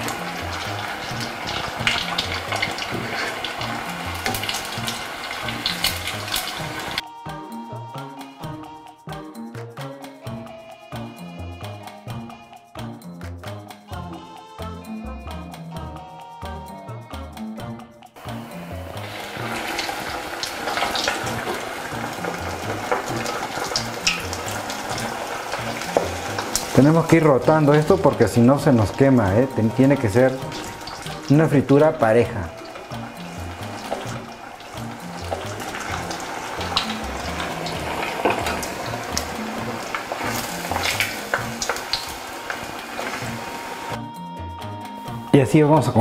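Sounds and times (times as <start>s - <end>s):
hot oil sizzling and crackling: 0.0s - 7.0s, 18.2s - 44.0s
oil popping: 0.0s - 7.0s, 18.2s - 44.0s
music bass line: 21.2s - 41.8s
metal tongs clicking on pot: 22.2s - 25.1s.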